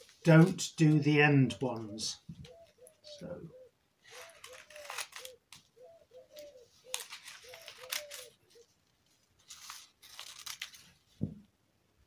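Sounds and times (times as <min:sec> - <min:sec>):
scissors snipping paper: 0:04.1 - 0:05.7, 0:06.4 - 0:08.4, 0:09.4 - 0:10.9.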